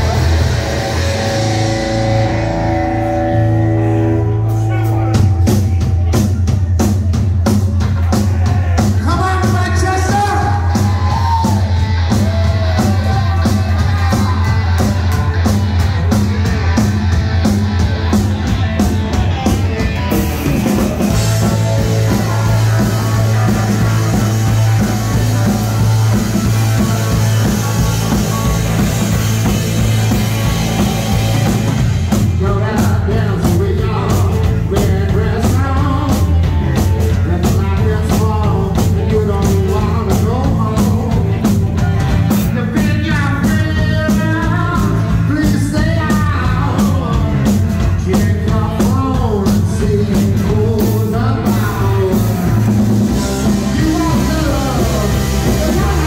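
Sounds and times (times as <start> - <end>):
bass guitar: 0.0 - 56.0
electric guitars: 0.0 - 56.0
pounding drum kit: 0.0 - 56.0
person singing: 17.9 - 56.0.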